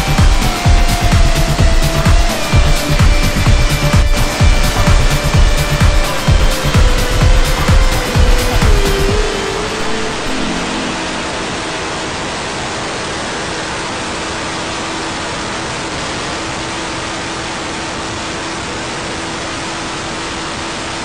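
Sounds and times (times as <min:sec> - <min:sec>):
faint motorcycle engine: 0:00.0 - 0:12.8.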